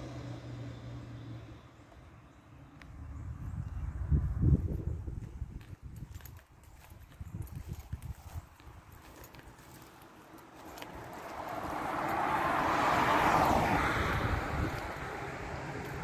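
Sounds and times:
car driving past: 0:10.7 - 0:16.0.

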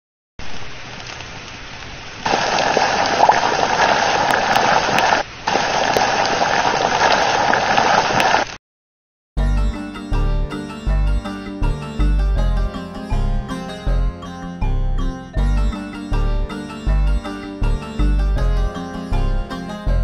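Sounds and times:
rushing crackling fire effect: 0:00.4 - 0:08.6.

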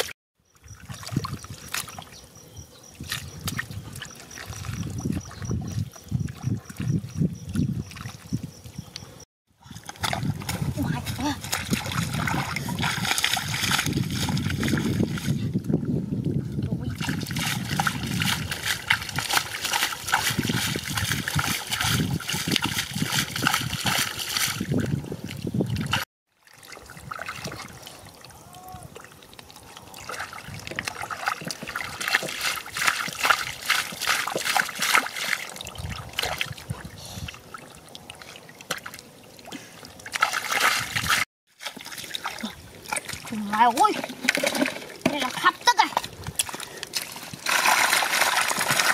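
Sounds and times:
shallow water splashing: 0:09.7 - 0:15.6, 0:16.9 - 0:48.9.

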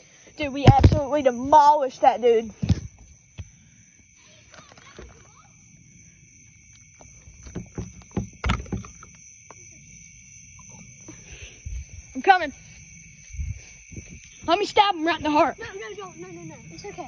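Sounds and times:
footsteps and knocks on deck: 0:07.3 - 0:09.1.

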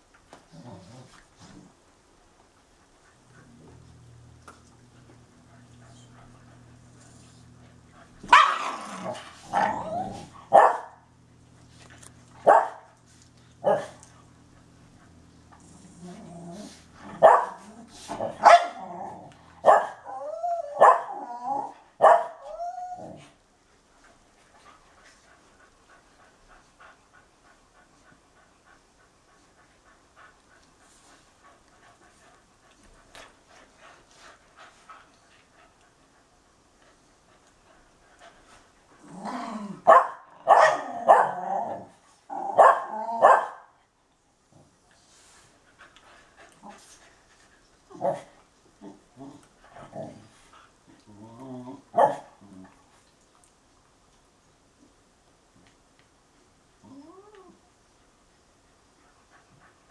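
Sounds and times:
dog panting: 0:02.3 - 0:08.3, 0:23.7 - 0:39.2, 0:44.6 - 0:51.1, 0:58.6 - 0:59.9
dogs barking: 0:08.3 - 0:08.8, 0:10.5 - 0:11.0, 0:12.4 - 0:12.9, 0:17.2 - 0:17.6, 0:18.4 - 0:18.8, 0:19.6 - 0:20.0, 0:22.0 - 0:22.4, 0:39.9 - 0:41.4, 0:42.6 - 0:43.7.

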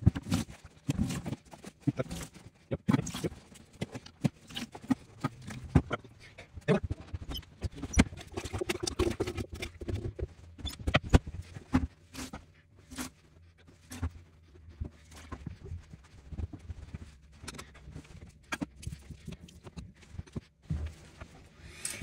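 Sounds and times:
plunger working in toilet bowl: 0:06.7 - 0:11.2.

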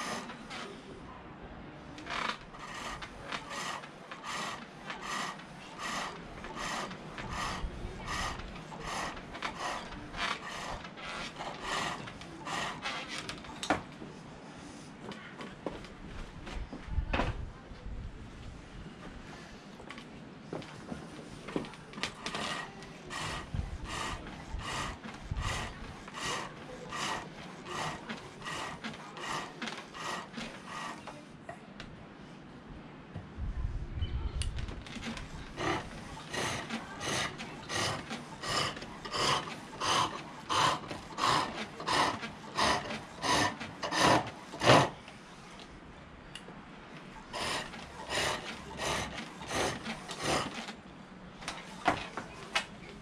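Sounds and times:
lathe tool scraping wood: 0:00.0 - 0:00.6, 0:02.1 - 0:13.3, 0:22.1 - 0:31.2, 0:35.0 - 0:45.1, 0:47.3 - 0:50.8.

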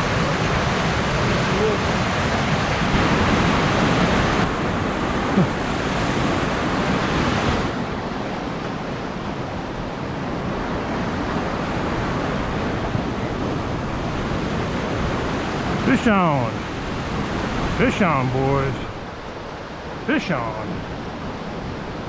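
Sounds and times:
river water pouring over dam: 0:00.0 - 0:10.3.

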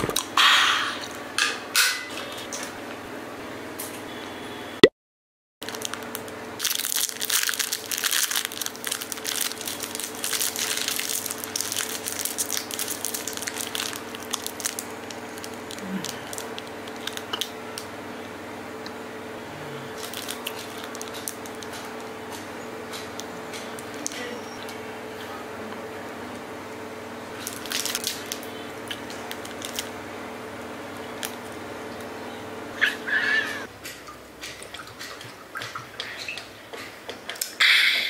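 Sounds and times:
plastic wrapper crinkling: 0:05.6 - 0:17.9, 0:20.0 - 0:22.1, 0:27.4 - 0:29.9
crackles of eating: 0:05.6 - 0:37.6
steady low hum: 0:05.7 - 0:38.0.

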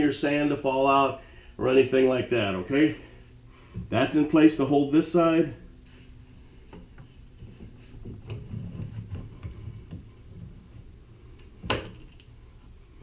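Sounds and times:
pipe clamps sliding and clicking: 0:06.6 - 0:12.7.

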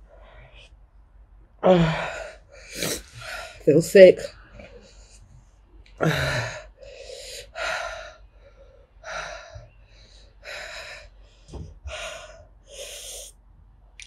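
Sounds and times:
woman panting: 0:01.6 - 0:04.0, 0:06.0 - 0:11.1, 0:11.8 - 0:13.3.

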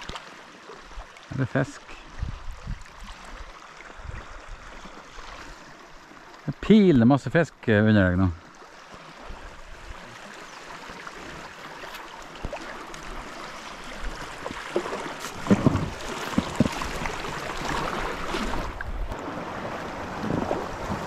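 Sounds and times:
river water washing around canoe: 0:00.0 - 0:21.0
wind buffeting microphone: 0:02.1 - 0:04.7
knocks on canoe: 0:14.4 - 0:17.2.

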